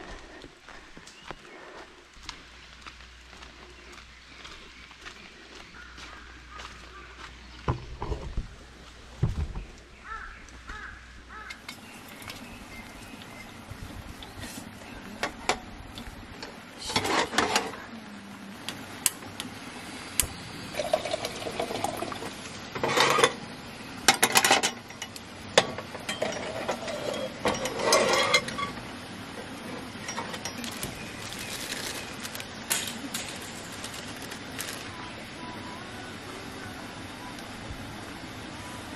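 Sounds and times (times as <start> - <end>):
metal cookware clinking and rattling: 22.8 - 23.4, 24.1 - 28.8, 30.0 - 31.0.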